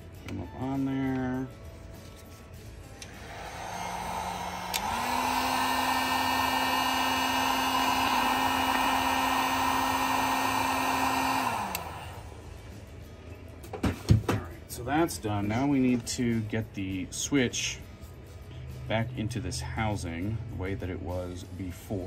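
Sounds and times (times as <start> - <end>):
heat gun switch click: 3.0 - 12.1
heat gun fan humming: 3.0 - 12.5.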